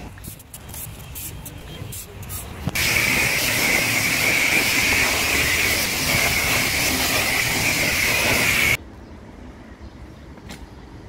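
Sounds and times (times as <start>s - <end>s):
pressure washer jet hissing: 2.8s - 8.8s.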